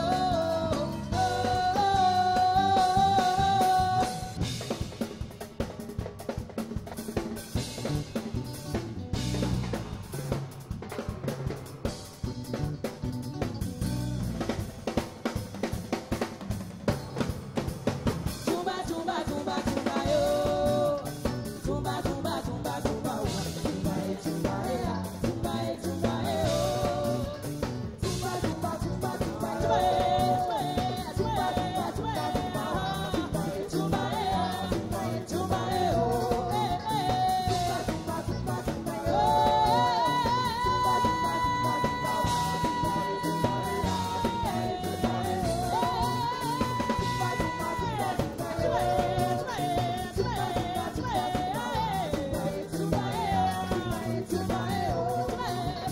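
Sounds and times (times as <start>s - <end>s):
woman singing: 0.0s - 4.4s, 18.4s - 55.9s
drum kit groove: 0.0s - 55.9s
guitars: 0.0s - 55.9s
live band playing: 0.0s - 55.9s.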